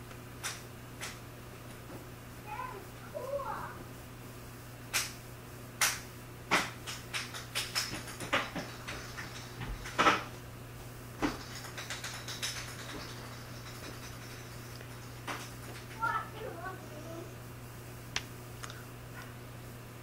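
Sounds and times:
steady low hum: 0:00.0 - 0:20.0
hands slapping and tapping: 0:04.9 - 0:05.2, 0:05.8 - 0:10.3, 0:11.2 - 0:14.2.

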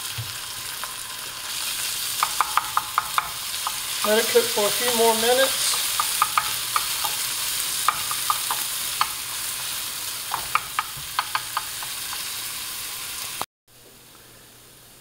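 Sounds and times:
onions sizzling in oil: 0:00.0 - 0:13.5
wooden spoon clicking against pan: 0:02.2 - 0:03.9, 0:05.7 - 0:09.2, 0:10.3 - 0:12.3
faint steady hiss: 0:10.4 - 0:15.0.

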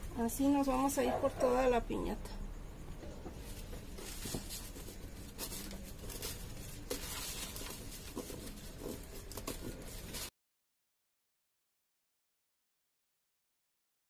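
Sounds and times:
crepe paper rustling and crinkling: 0:03.3 - 0:10.3.

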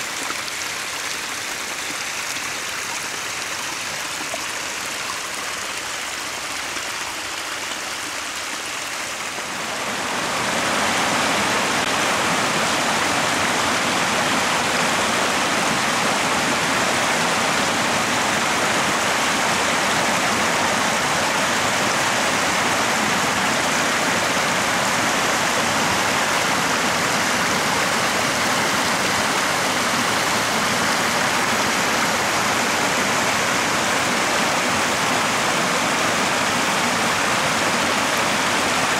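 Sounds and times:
brook splashing over stones: 0:00.0 - 0:17.5.

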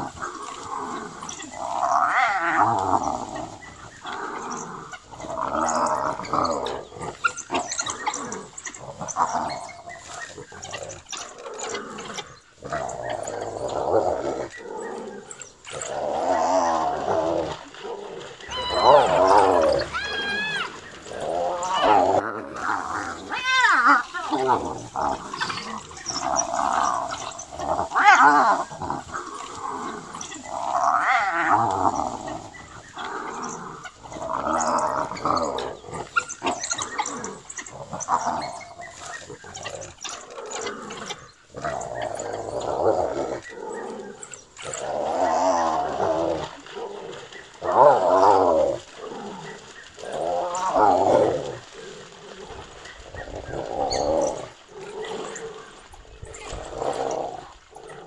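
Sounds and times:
hyena groans and squeals: 0:00.0 - 0:51.9.

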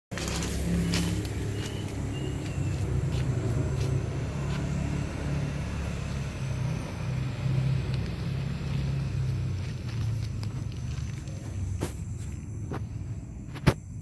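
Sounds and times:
low engine rumble: 0:00.1 - 0:14.0.

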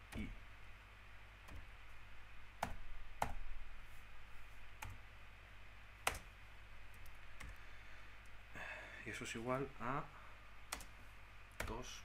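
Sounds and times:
faint low electrical hum: 0:00.0 - 0:12.0
computer mouse clicks: 0:06.0 - 0:06.3.

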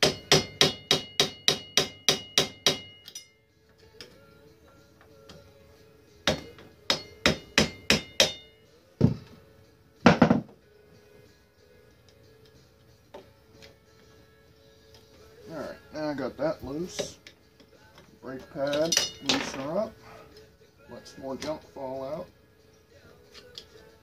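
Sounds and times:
hammer tapping metal: 0:00.0 - 0:03.4, 0:06.3 - 0:08.6.

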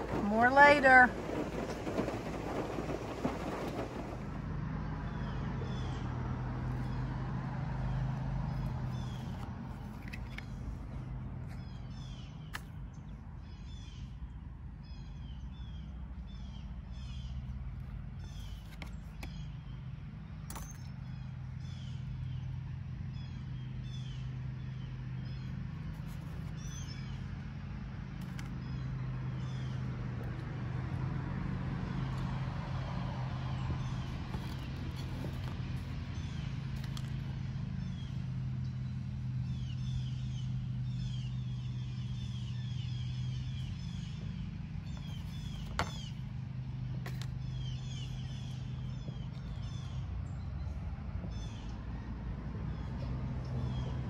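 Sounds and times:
bird chirping: 0:37.7 - 0:51.8.

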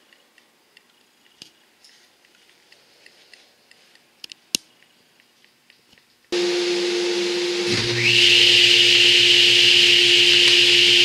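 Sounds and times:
small clicks and ticks: 0:00.0 - 0:06.4.

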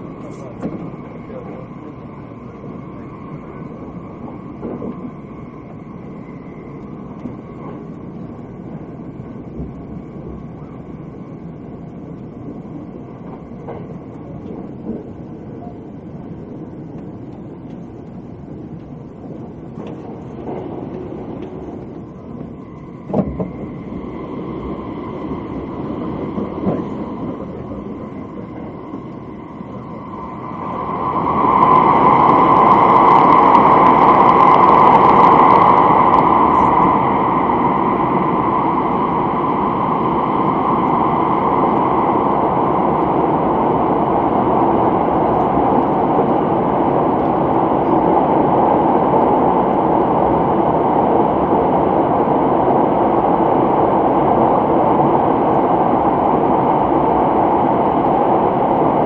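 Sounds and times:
train cabin running rumble: 0:00.0 - 0:59.0
track knocks: 0:04.5 - 0:05.2, 0:08.7 - 0:10.7, 0:19.8 - 0:29.2.

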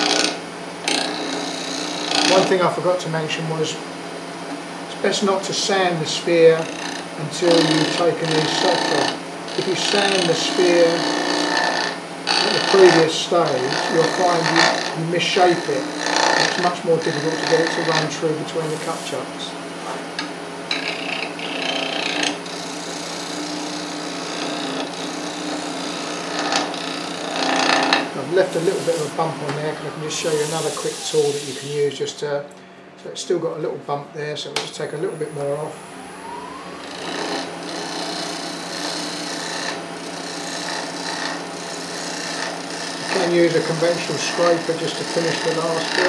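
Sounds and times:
tool scraping spinning wood: 0:00.0 - 0:03.8, 0:04.9 - 0:32.0, 0:35.0 - 0:46.0
lathe motor hum: 0:00.0 - 0:31.9, 0:33.4 - 0:46.0
gouge cutting wood hissing: 0:00.9 - 0:02.6, 0:05.0 - 0:19.4, 0:21.0 - 0:31.8, 0:36.2 - 0:46.0.

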